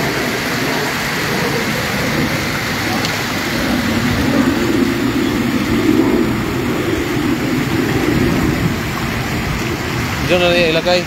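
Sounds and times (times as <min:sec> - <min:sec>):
legs wading through water: 0:00.0 - 0:11.0
stream water rushing: 0:00.0 - 0:11.0.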